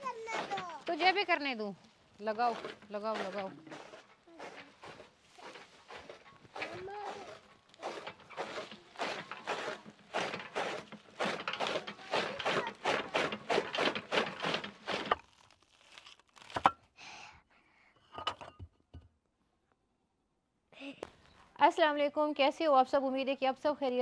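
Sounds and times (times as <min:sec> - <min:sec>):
dry leaves rustling and crackling: 0:14.8 - 0:16.6.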